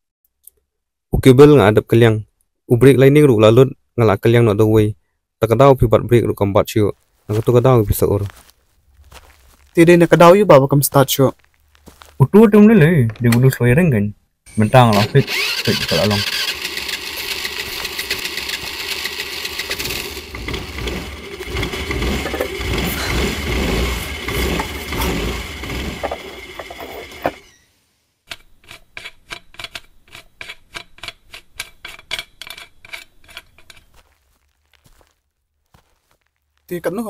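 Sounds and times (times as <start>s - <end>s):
motor scooter engine running: 14.9s - 27.6s
rapid mechanical ticking: 15.0s - 27.5s.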